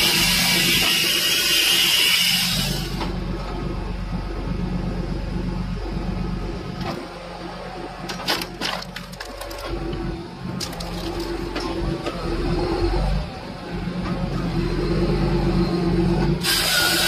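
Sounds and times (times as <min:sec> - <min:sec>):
tractor engine running: 0:03.0 - 0:16.4
wood cracking and knocking: 0:08.0 - 0:11.6.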